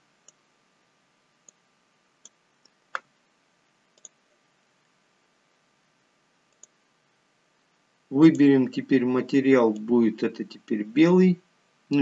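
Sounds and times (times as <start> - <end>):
computer mouse clicking: 3.9 - 4.2, 6.5 - 6.8.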